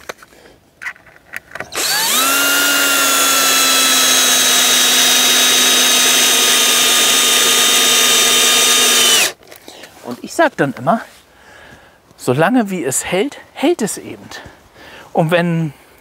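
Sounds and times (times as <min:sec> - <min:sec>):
electric drill drilling into wood: 0:01.7 - 0:09.4.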